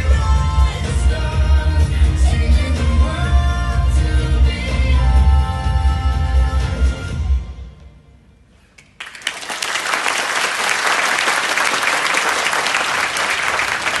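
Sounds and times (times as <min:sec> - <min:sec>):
pop music: 0:00.0 - 0:07.6
audience applauding: 0:09.0 - 0:14.0.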